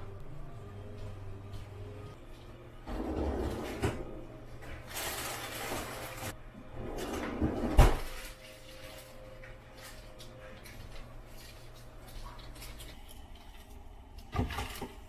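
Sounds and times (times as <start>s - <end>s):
plastic packages rustling: 4.7s - 6.4s, 8.0s - 14.0s.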